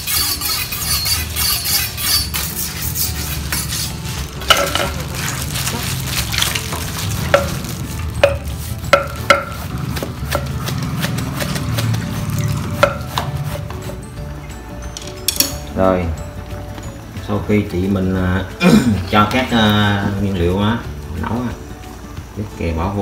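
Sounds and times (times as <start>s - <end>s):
knife chopping lettuce: 2.6s - 14.0s.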